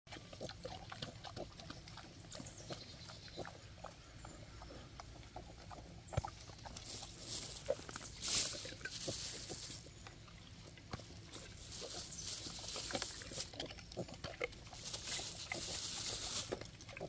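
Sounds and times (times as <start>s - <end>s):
pigs chewing and snuffling: 0.1s - 17.0s
pigs grunting: 0.1s - 17.0s
rustling hiss: 6.7s - 10.0s, 10.9s - 13.7s, 14.5s - 16.9s.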